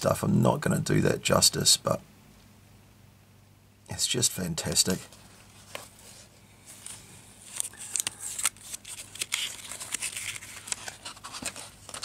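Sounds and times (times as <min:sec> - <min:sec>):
book pages rustling: 0:04.9 - 0:12.0.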